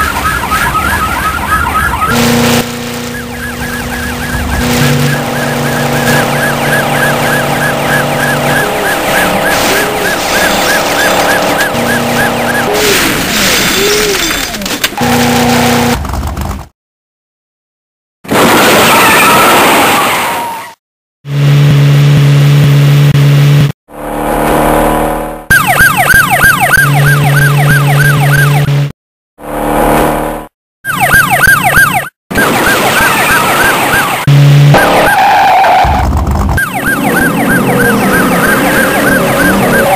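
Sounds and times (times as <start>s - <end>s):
police siren yelping: 0.0s - 2.2s, 3.0s - 12.9s, 25.5s - 28.7s, 30.8s - 36.0s, 36.6s - 39.9s
siren wailing: 0.0s - 12.9s, 25.5s - 28.7s, 30.8s - 36.0s, 36.6s - 39.9s
car engine hum: 1.9s - 12.8s.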